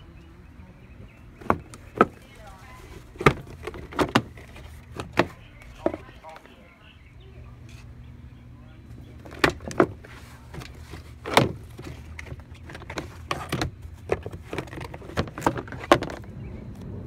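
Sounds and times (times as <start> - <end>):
plastic knocking: 1.4 - 6.1, 9.2 - 16.2.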